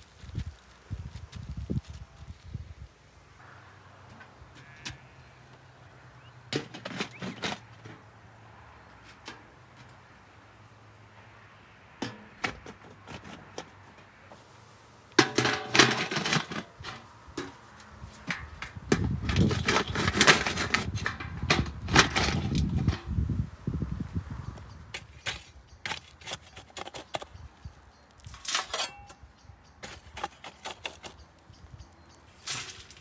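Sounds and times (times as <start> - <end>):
gravel crunching: 0.0 - 10.2
metal scraping on stones: 4.1 - 5.4, 6.5 - 8.1, 12.0 - 14.4, 15.1 - 23.2, 24.9 - 33.0
metal bucket clinks and knocks: 6.5 - 8.0, 15.2 - 17.6, 18.2 - 23.1, 28.2 - 29.2.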